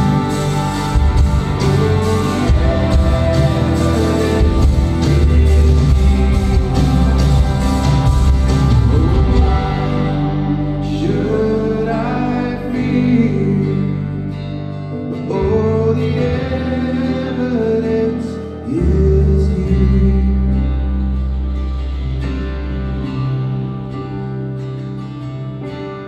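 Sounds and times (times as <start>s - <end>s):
people singing: 0.0s - 14.0s, 15.3s - 20.2s
guitar: 0.0s - 26.0s
low bass line: 0.0s - 26.0s.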